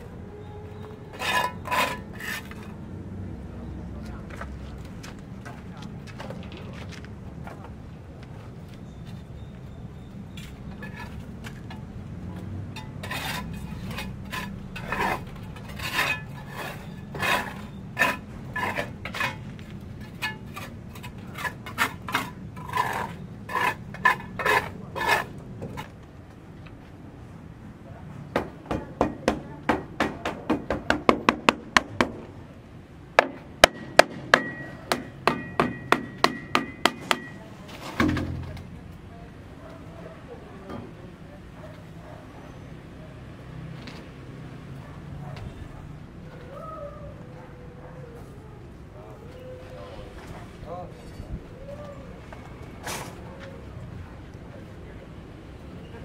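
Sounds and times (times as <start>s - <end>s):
hammer blows: 33.2s - 37.4s.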